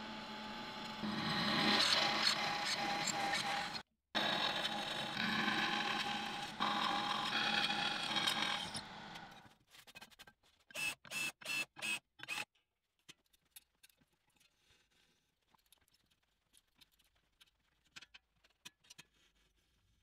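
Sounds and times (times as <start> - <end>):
electric drill cutting steel: 0.0 - 9.4, 10.8 - 12.5.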